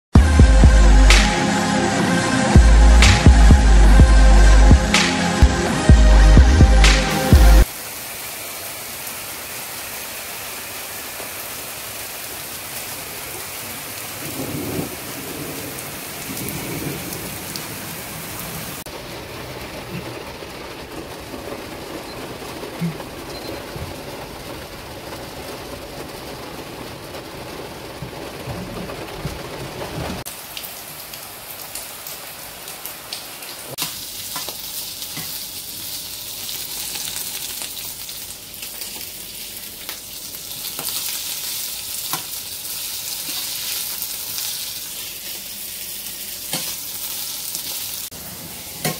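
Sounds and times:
heavy rain pouring: 0:00.2 - 0:48.9
food frying in a pan: 0:07.6 - 0:17.4, 0:30.2 - 0:48.9
thunder rumble: 0:14.2 - 0:30.3
road rush inside moving car: 0:18.8 - 0:30.3.

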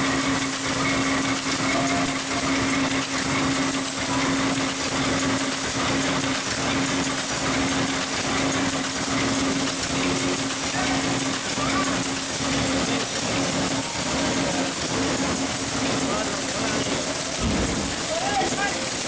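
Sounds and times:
machine rollers mechanical noise: 0:00.0 - 0:19.0.

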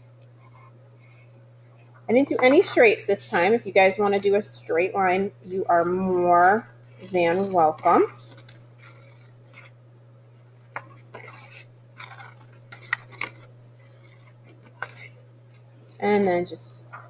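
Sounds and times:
steady low hum: 0:00.0 - 0:17.0
scissors snipping paper: 0:05.7 - 0:09.7, 0:10.3 - 0:16.1.

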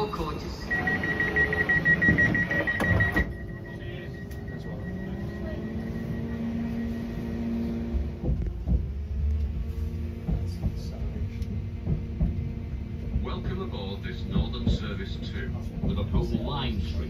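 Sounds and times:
high-pitched door warning beeps: 0:00.0 - 0:07.4
train motor hum: 0:00.0 - 0:17.0
knocks: 0:08.2 - 0:09.0, 0:11.8 - 0:12.6.

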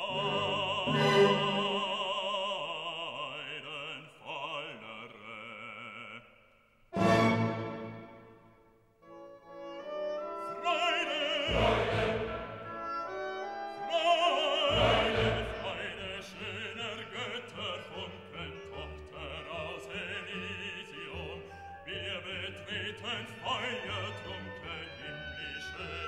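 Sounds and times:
orchestra playing: 0:00.0 - 0:02.0, 0:07.0 - 0:08.5, 0:09.1 - 0:21.3
operatic voice singing: 0:00.0 - 0:06.4, 0:10.4 - 0:12.8, 0:13.7 - 0:26.0.

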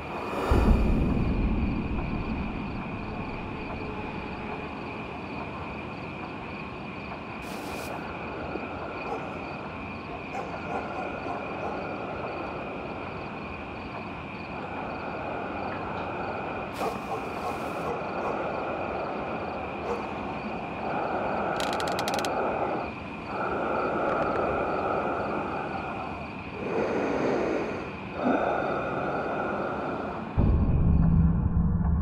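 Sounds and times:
steady low rumble: 0:00.0 - 0:07.2, 0:18.4 - 0:32.0
deep boom: 0:00.4 - 0:04.8, 0:30.4 - 0:32.0
faint clicks: 0:21.5 - 0:22.4, 0:24.0 - 0:24.6.

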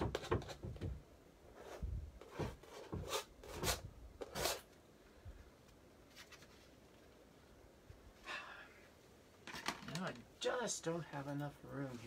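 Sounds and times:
soft breath-like sound: 0:08.2 - 0:09.0.

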